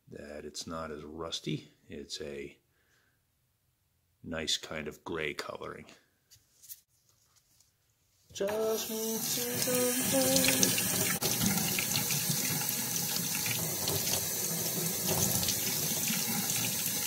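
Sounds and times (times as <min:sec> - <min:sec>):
faucet water running: 0:08.4 - 0:17.0.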